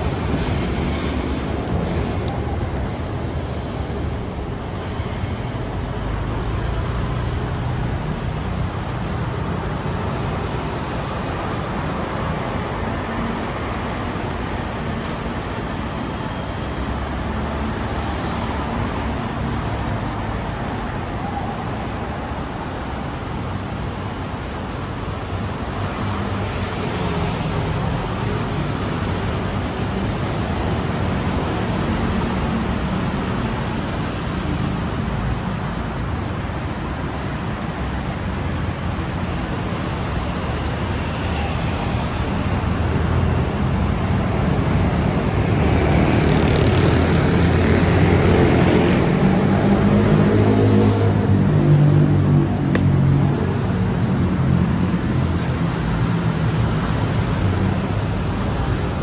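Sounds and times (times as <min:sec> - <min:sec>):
cars driving past: 0:21.8 - 0:59.0.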